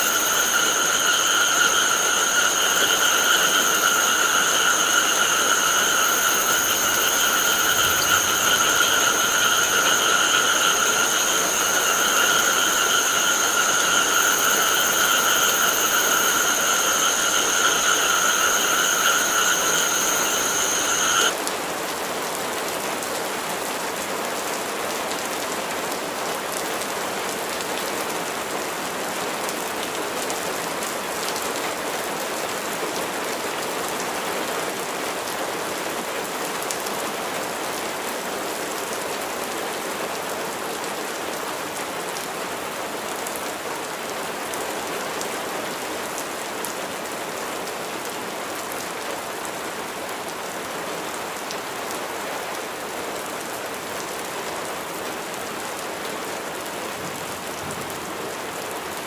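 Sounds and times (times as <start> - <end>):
steady rain falling: 0.0 - 59.0.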